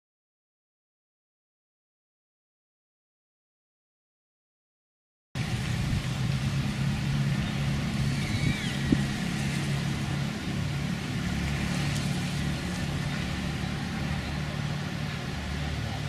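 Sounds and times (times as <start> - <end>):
low hum: 5.4 - 16.0.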